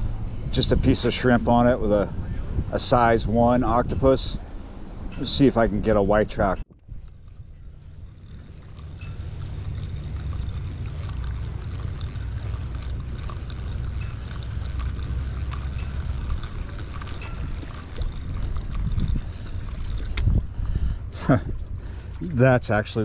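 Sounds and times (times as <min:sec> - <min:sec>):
wind rumble on microphone: 0:00.0 - 0:06.2, 0:06.8 - 0:23.0
fishing reel ticking: 0:07.0 - 0:20.7
water splashing: 0:07.0 - 0:23.0.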